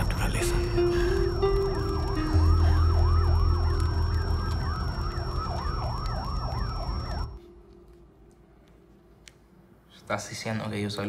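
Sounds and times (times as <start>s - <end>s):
low steady drone: 0.0s - 8.4s
siren yelping: 0.6s - 7.4s.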